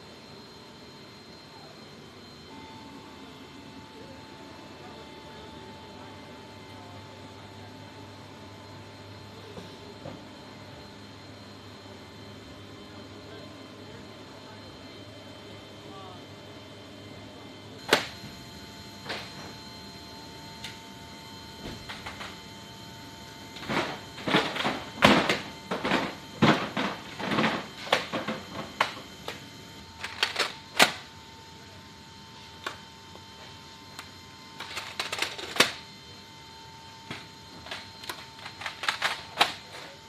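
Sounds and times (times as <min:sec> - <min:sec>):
steady high-pitched whine: 0:00.0 - 0:40.0.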